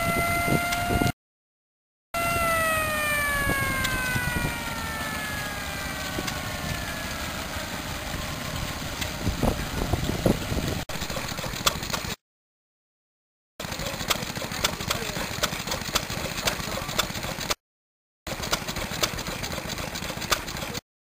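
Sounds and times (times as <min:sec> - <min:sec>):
high whine sliding down: 0:00.0 - 0:01.2, 0:02.2 - 0:11.6
stationary engine running: 0:02.2 - 0:12.2, 0:13.6 - 0:17.6, 0:18.3 - 0:20.8.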